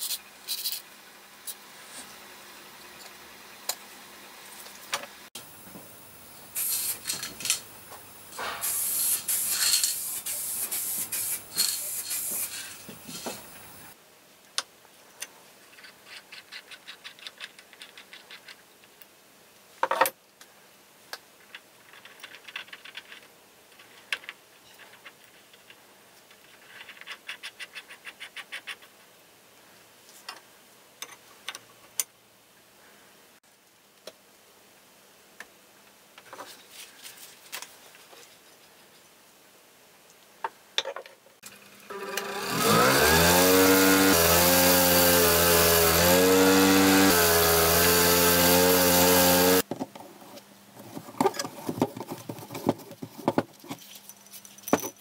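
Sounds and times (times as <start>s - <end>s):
loud spraying hiss: 6.4s - 7.2s, 8.3s - 14.0s.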